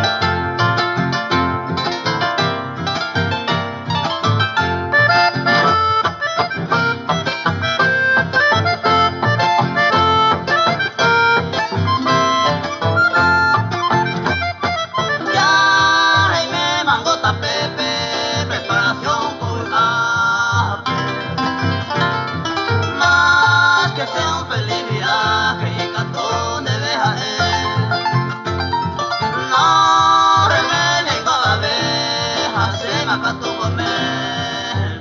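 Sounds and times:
harp melody: 0.0s - 16.8s
accordion melody: 0.0s - 35.0s.

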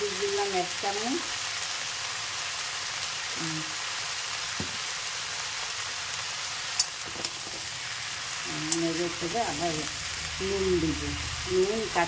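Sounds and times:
vegetables sizzling in hot oil: 0.0s - 12.0s
light knock: 4.6s - 4.8s
metal spatula turning food: 6.6s - 9.6s.

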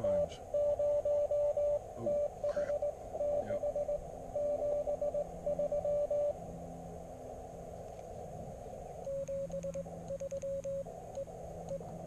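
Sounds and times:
morse code tone: 0.0s - 6.4s, 9.1s - 11.8s.

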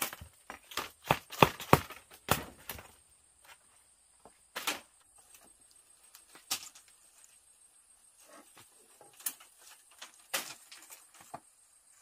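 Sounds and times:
knocks on bamboo: 0.0s - 2.9s.

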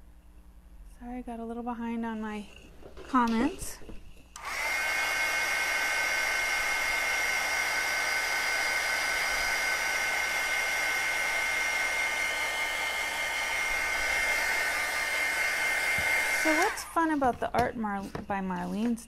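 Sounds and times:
heat gun fan rushing hiss: 4.4s - 17.3s.

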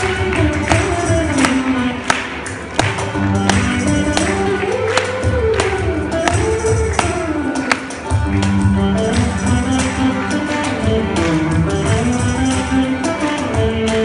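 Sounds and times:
veena melody with pitch bends: 0.0s - 14.0s
hand drum strokes: 0.6s - 10.0s.

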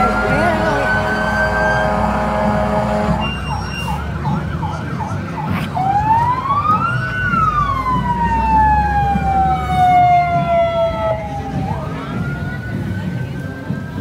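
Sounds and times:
siren horn tone: 0.0s - 4.8s
siren yelp warble: 0.0s - 12.7s
siren wail: 0.0s - 12.9s.

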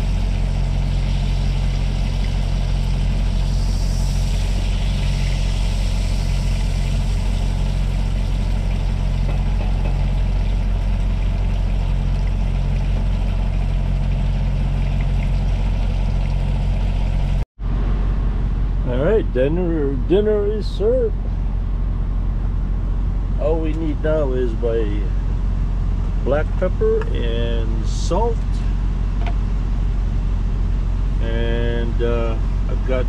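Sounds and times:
fish sizzling in a pan: 0.0s - 17.1s
diesel engine idling: 0.0s - 33.0s.

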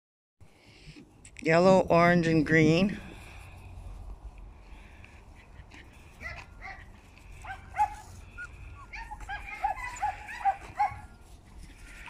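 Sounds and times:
puppies yipping and whimpering: 5.3s - 12.0s.

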